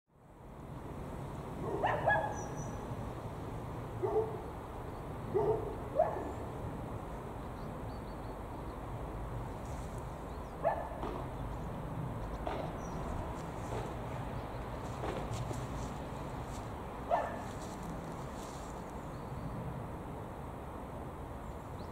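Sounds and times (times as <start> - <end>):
dog barking: 1.6 - 2.4, 4.0 - 4.4, 5.3 - 6.4, 10.6 - 11.0, 17.1 - 17.5.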